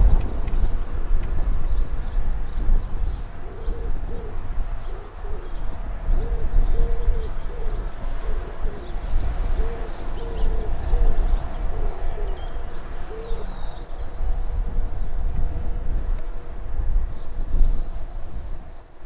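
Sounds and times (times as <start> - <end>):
steady low rumble: 0.0 - 19.0
pigeon cooing: 3.4 - 13.6
small birds chirping: 8.8 - 16.0.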